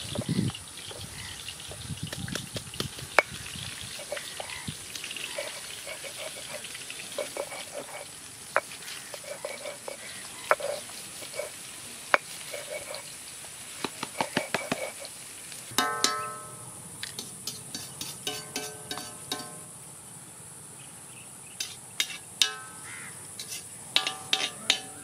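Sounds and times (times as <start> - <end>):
steady high hiss: 0.0 - 25.0
stone roller knocking on stone: 15.7 - 16.6, 17.2 - 19.7, 22.0 - 22.8, 24.0 - 25.0.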